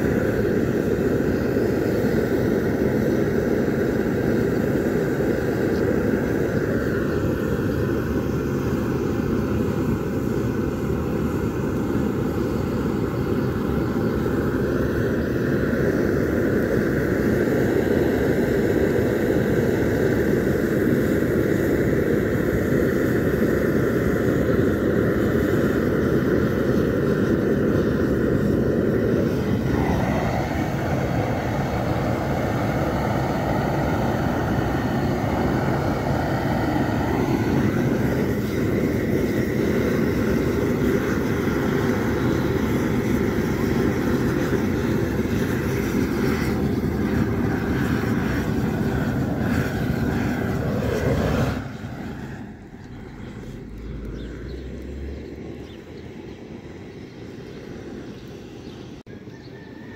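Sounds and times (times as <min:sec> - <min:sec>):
gas burner rushing: 0:00.0 - 0:55.8.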